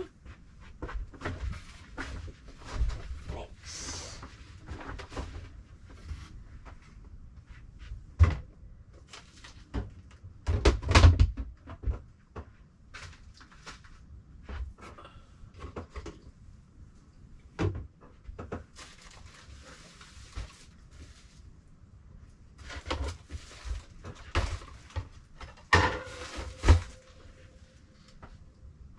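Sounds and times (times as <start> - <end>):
rustling: 18.7 - 28.3
boxes and items clattering: 22.6 - 27.8.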